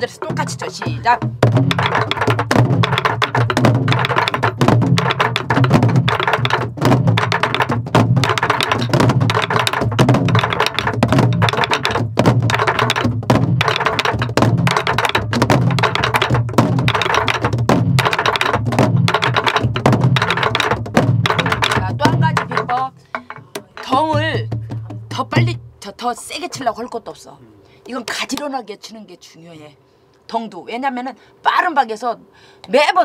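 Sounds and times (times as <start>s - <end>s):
sticks clacking on drums: 0.0s - 25.0s
low drum booms: 0.2s - 25.8s.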